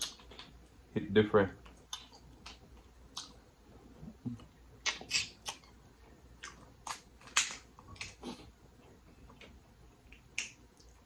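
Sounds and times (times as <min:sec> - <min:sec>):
wet lip smacks and clicks: 0:00.0 - 0:00.6, 0:01.6 - 0:03.4, 0:04.2 - 0:05.8, 0:06.4 - 0:08.5, 0:09.3 - 0:11.0
chewing food: 0:01.6 - 0:11.0.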